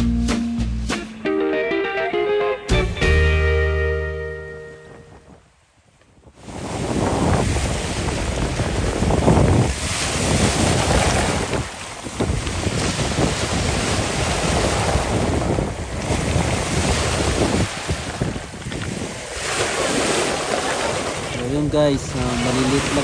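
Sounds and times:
wind buffeting microphone: 4.7s - 23.0s
lake waves washing over pebbles: 6.3s - 23.0s.

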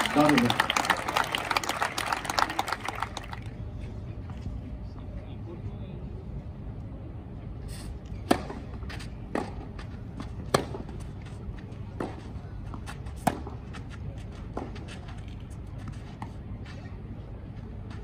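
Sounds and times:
tennis ball hit by rackets: 8.2s - 9.6s, 10.2s - 11.0s, 12.0s - 13.6s.

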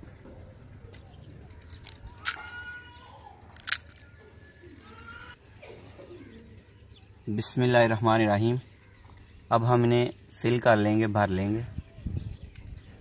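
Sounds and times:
crisp fried shells cracking: 3.6s - 4.0s.

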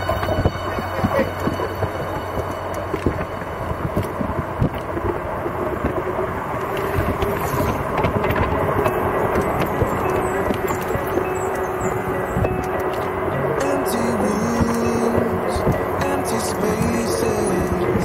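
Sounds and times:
bike rattling clicks and knocks: 0.0s - 13.8s
wind and tyre noise: 0.0s - 18.0s.

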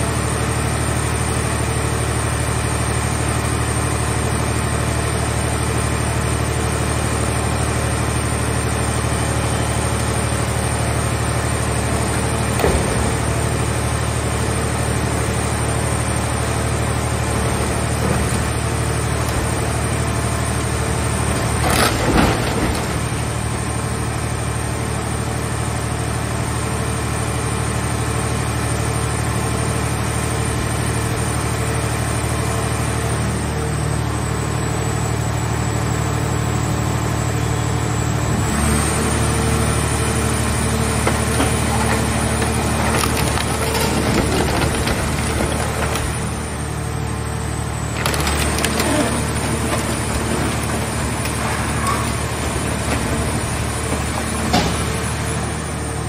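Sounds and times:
baler machine drone: 33.8s - 56.0s
metal crunching: 40.5s - 46.7s, 47.5s - 55.6s.

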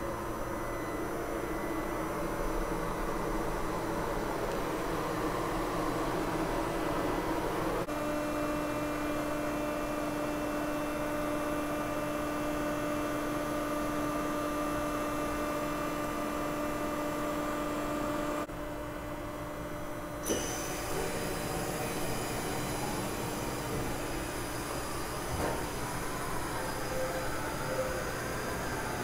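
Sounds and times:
machining center humming: 0.0s - 29.0s.

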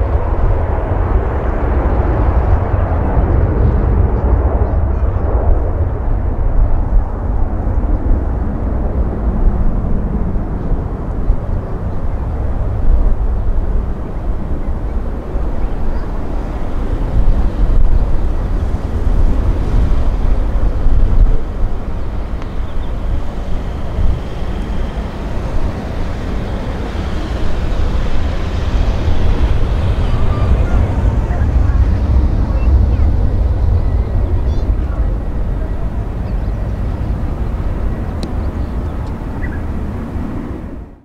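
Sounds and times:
jet engines deep rumble: 0.0s - 41.0s.

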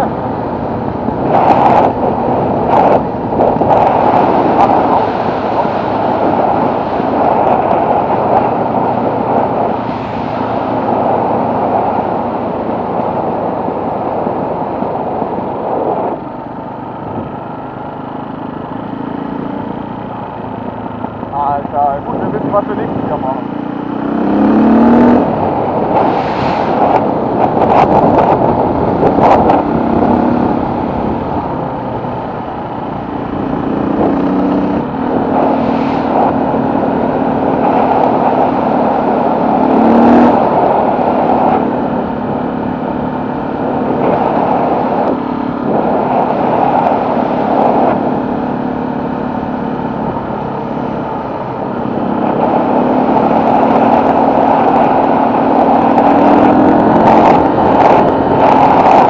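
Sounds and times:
road noise: 0.0s - 59.0s
wind noise on microphone: 0.0s - 59.0s
vehicle engine running: 16.2s - 59.0s.

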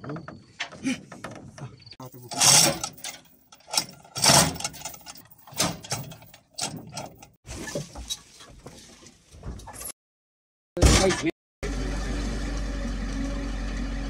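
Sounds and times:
steel chain rattling and clanking: 2.0s - 7.4s.

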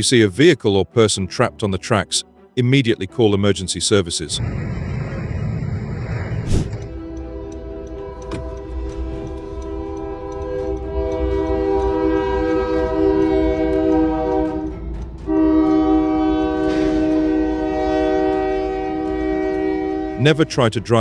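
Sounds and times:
train rumble: 4.4s - 21.0s
locomotive air horn chord: 6.8s - 21.0s.

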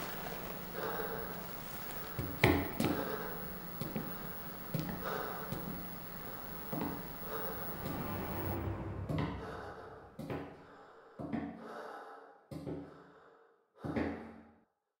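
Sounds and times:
low ringing impact hits: 7.5s - 10.4s.

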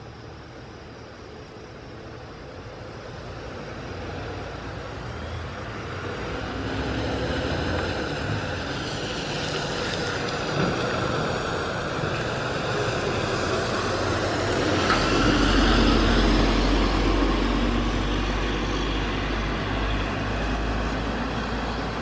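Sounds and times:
high jet engine whine: 0.0s - 22.0s
jet airliner engine noise: 0.0s - 22.0s.

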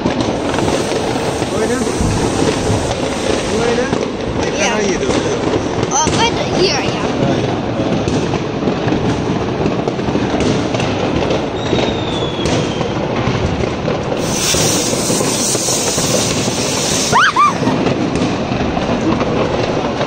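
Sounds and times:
firework fountain hissing: 0.0s - 20.0s
fireworks crackling and popping: 0.0s - 20.0s
rising and falling whistle: 11.6s - 13.0s, 16.8s - 17.7s.

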